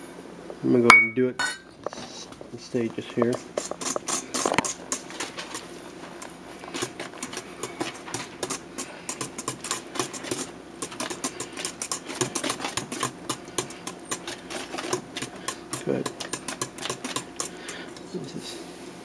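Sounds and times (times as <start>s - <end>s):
whisk clicking in metal bowl: 6.7s - 17.9s.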